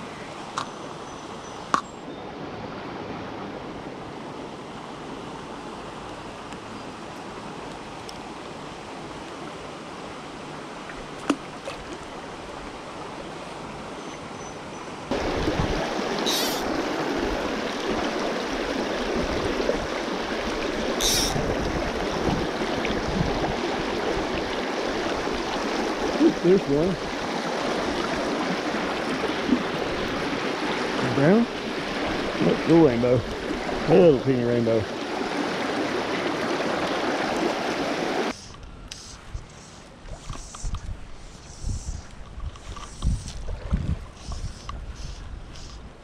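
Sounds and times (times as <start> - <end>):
stream rushing over stones: 15.1 - 38.4.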